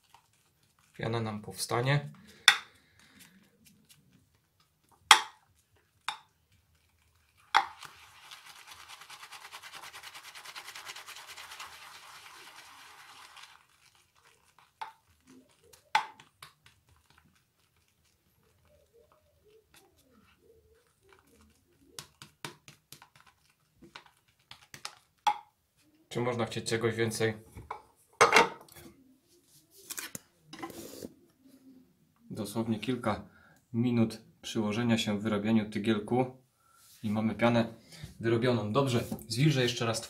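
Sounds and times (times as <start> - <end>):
brush whisking lather: 0.0 - 25.2.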